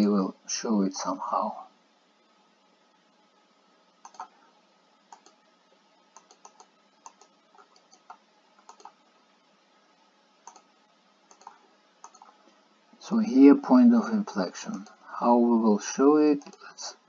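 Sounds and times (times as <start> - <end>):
computer mouse clicks: 4.0 - 4.4, 5.1 - 5.4, 6.1 - 9.0, 10.4 - 10.7, 11.3 - 12.4, 14.7 - 15.0, 16.4 - 16.7.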